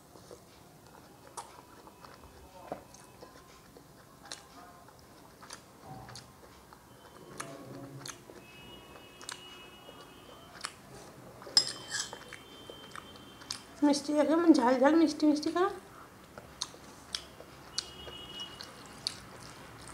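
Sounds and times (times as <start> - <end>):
chewing soft food: 0.0 - 13.8, 15.9 - 19.9
wet mouth clicks: 16.4 - 19.9.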